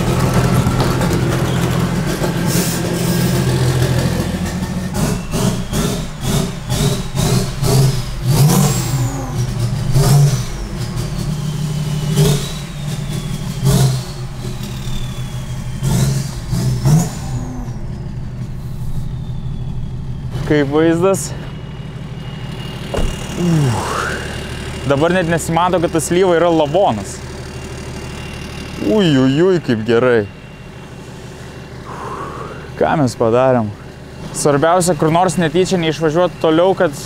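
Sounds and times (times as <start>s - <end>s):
diesel engine running: 0.0s - 37.0s
short knocks: 22.9s - 23.4s.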